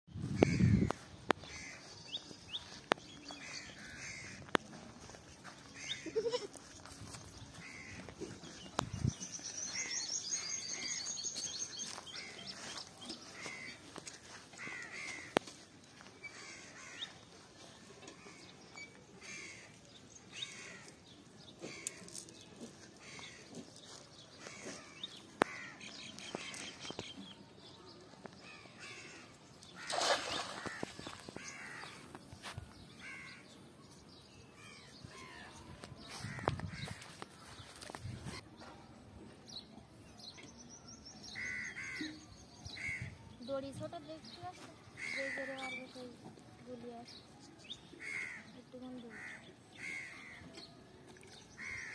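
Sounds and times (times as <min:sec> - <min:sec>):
birds calling: 0:00.2 - 0:38.7, 0:39.5 - 0:46.2, 0:46.9 - 0:51.9
net splashing into water: 0:29.8 - 0:31.1.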